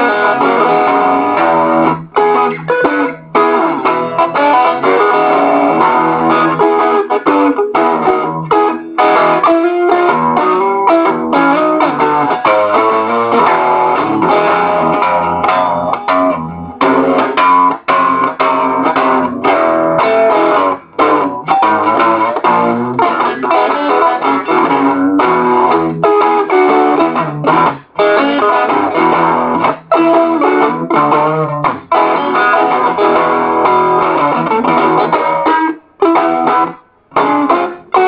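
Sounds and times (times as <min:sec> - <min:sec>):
out-of-tune blues guitar riff: 0:00.0 - 0:38.0.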